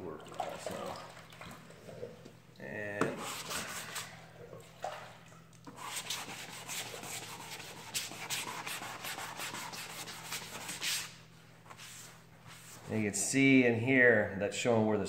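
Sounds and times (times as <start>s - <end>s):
sandpaper rubbing on panel: 3.1s - 4.1s, 5.7s - 11.2s.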